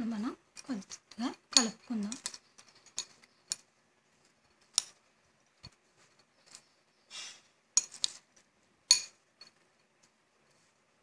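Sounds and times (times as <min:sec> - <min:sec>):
metal spoon clinking on bowl: 0:08.9 - 0:09.6.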